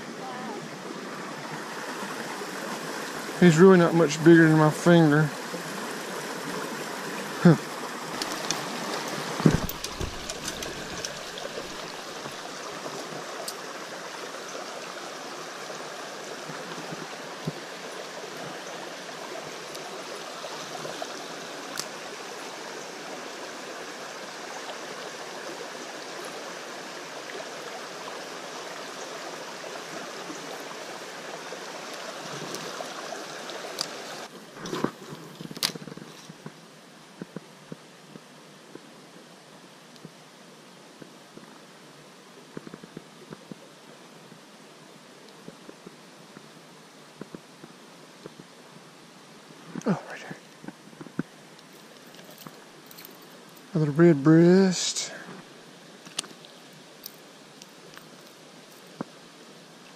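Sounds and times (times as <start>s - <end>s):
creek water over rocks: 0.0s - 59.9s
sharp clicks and knocks: 9.4s - 11.9s.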